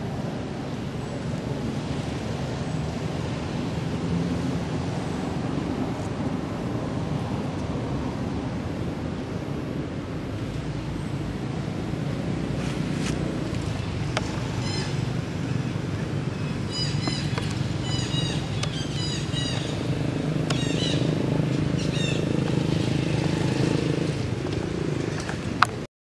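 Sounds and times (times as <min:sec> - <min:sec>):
small birds chirping: 0:12.5 - 0:24.2.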